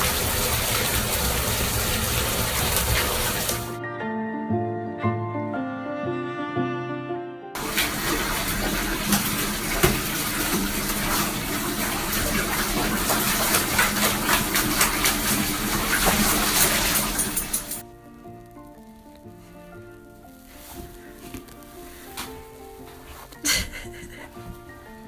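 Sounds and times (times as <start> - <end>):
faucet running into bathtub: 0.0 - 3.8, 7.6 - 17.8
water splashing: 0.0 - 3.8, 7.6 - 17.8
background music: 3.5 - 9.2, 16.5 - 25.0.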